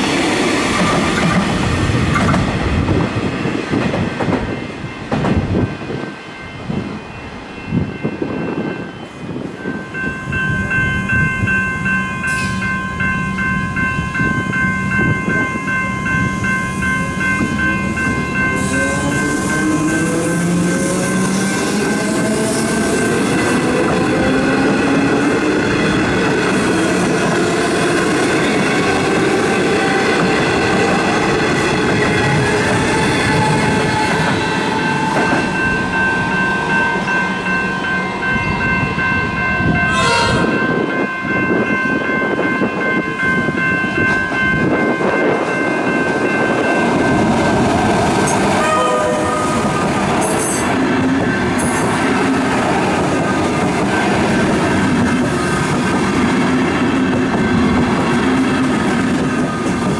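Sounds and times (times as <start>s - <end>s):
train wheels rumbling: 0.0s - 6.9s, 10.5s - 59.9s
train horn blast: 39.9s - 40.7s, 48.6s - 50.6s.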